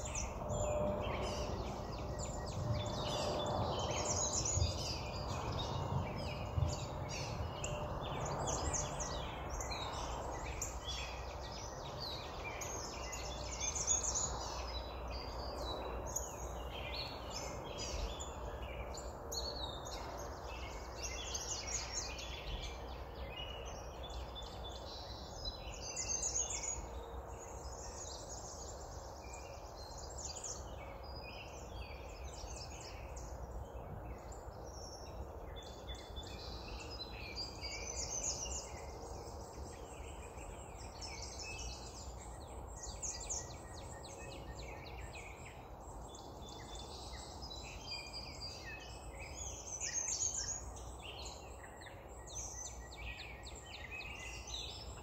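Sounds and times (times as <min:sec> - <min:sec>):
songbirds singing: 0:00.0 - 0:55.0.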